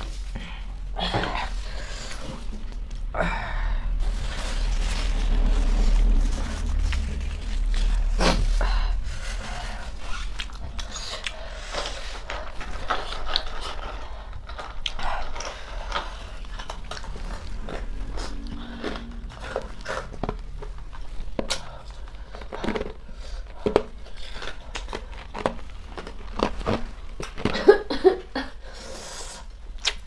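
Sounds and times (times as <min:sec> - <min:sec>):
steady low hum: 0:00.0 - 0:29.8
chewing noodles: 0:04.0 - 0:27.8
mouth clicks and crunches: 0:04.2 - 0:28.4, 0:29.3 - 0:30.0.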